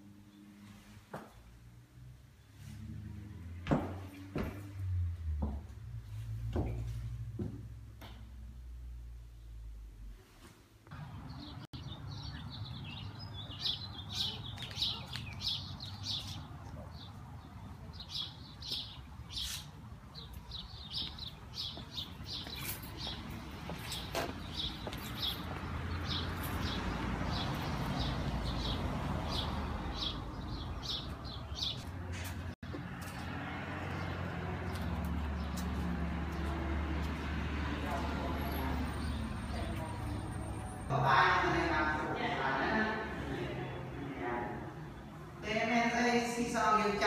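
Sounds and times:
small birds chirping: 0:11.0 - 0:33.2.

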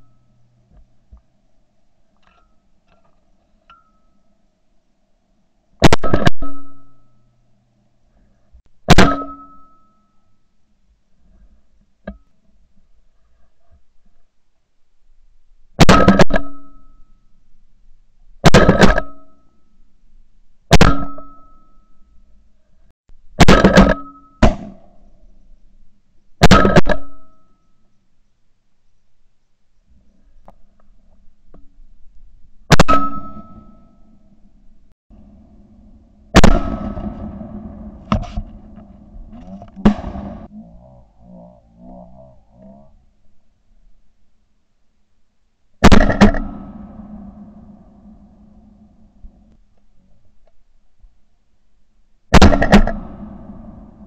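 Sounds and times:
short metallic ring: 0:03.7 - 0:04.3, 0:06.0 - 0:07.4, 0:08.9 - 0:10.6, 0:15.9 - 0:17.4, 0:20.8 - 0:22.4, 0:23.7 - 0:24.4, 0:32.8 - 0:34.3
shotgun blasts: 0:05.8 - 0:06.7, 0:08.8 - 0:09.6, 0:15.8 - 0:16.6, 0:18.4 - 0:19.2, 0:20.7 - 0:21.3, 0:23.4 - 0:24.9, 0:26.4 - 0:27.2, 0:32.7 - 0:33.6, 0:36.3 - 0:38.2, 0:39.8 - 0:40.5, 0:45.8 - 0:47.9, 0:52.3 - 0:54.0.

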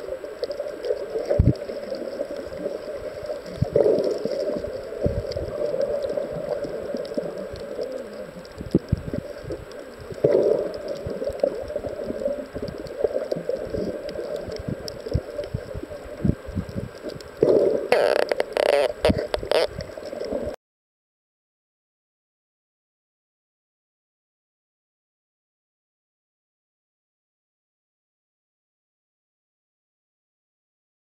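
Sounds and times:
underwater rushing hiss: 0:00.5 - 0:16.8.

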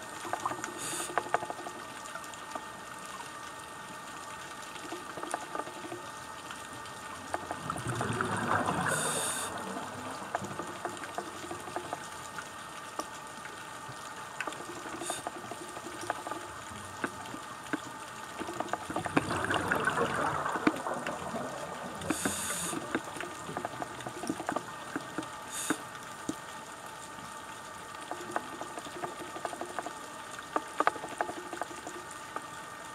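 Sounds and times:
crackle of fine clicks: 0:00.0 - 0:32.9
exhaled bubbles underwater: 0:04.8 - 0:13.2, 0:13.8 - 0:26.3, 0:28.0 - 0:32.3.

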